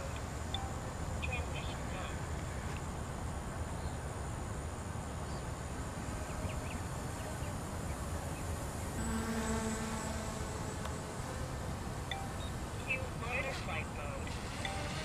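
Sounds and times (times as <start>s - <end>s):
steady pitched hum: 0.0s - 15.0s
distant electric motors droning: 5.8s - 15.0s.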